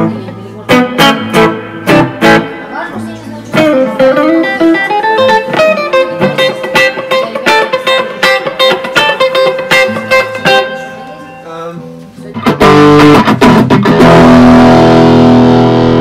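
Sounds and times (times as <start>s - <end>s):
electric guitar with spring reverb: 0.0s - 16.0s.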